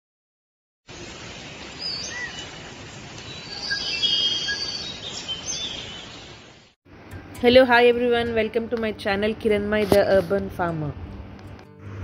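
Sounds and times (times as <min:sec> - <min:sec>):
outdoor ambience hiss: 0:00.9 - 0:12.0
birds chirping: 0:01.6 - 0:06.7.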